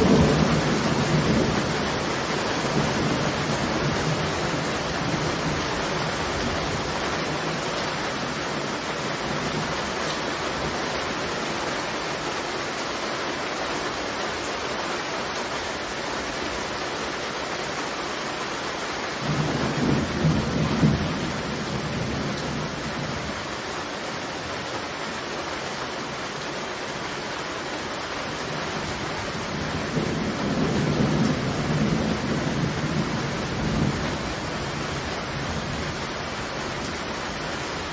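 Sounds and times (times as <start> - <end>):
thunder rumbling: 0.0 - 7.6, 19.2 - 23.4, 28.9 - 36.2
rain hiss: 0.0 - 37.9.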